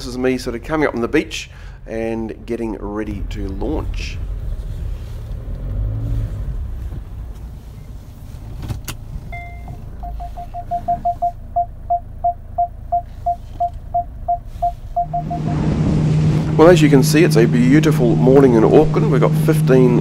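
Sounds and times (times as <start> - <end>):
engine and road rumble: 0.0 - 20.0
parking sensor beeping: 9.3 - 15.7.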